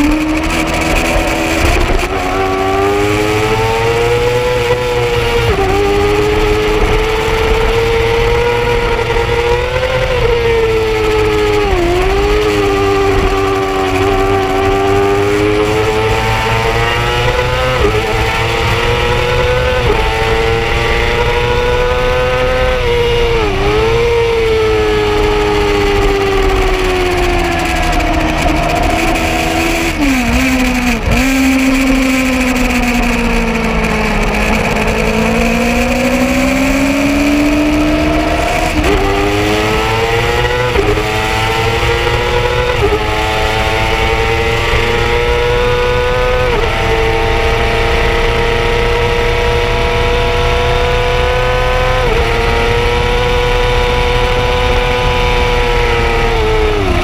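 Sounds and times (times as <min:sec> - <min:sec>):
motorcycle engine accelerating and shifting: 0:00.0 - 0:57.0
wind rushing: 0:17.0 - 0:44.6.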